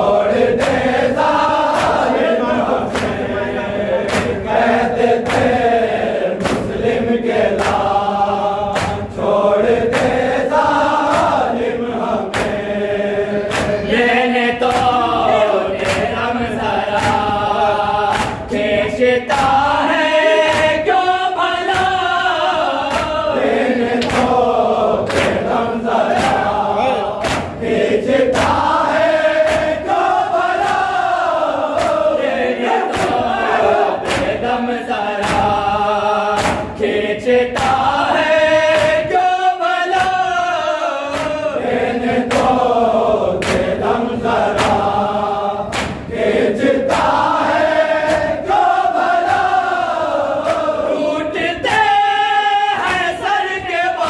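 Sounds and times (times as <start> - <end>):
man chanting into a microphone: 0.0 - 9.6, 13.1 - 23.4, 25.5 - 27.4
men chanting in chorus: 0.0 - 54.0
hands slapping chests: 0.3 - 12.8, 13.4 - 40.3, 41.0 - 50.9, 52.8 - 53.3.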